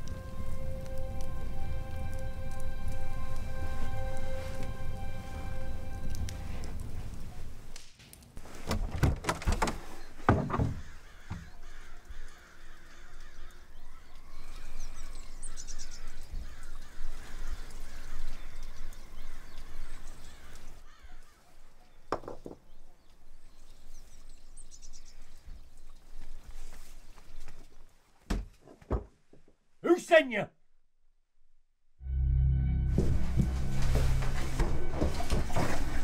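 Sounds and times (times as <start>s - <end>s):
birds calling: 9.6s - 26.6s.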